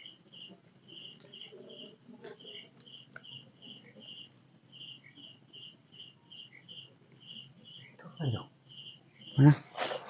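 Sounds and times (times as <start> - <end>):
insects chirping: 0.0 - 10.0
higher-pitched insect chirps: 2.4 - 10.0.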